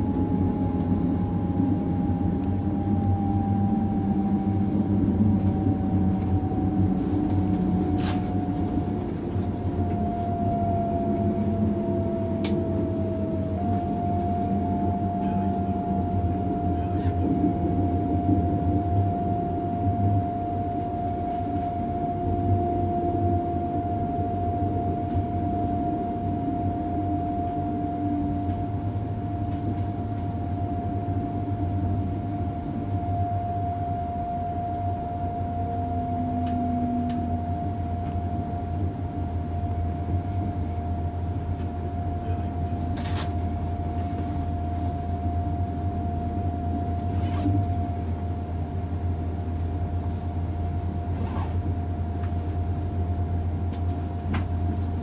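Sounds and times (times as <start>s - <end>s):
constant whine: 0.0s - 55.0s
train rumbling: 0.0s - 55.0s.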